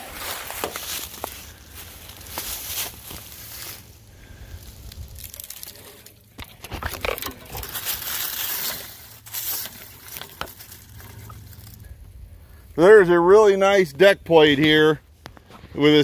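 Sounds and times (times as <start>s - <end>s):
footsteps through dry leaves: 0.0s - 6.3s, 7.0s - 12.1s.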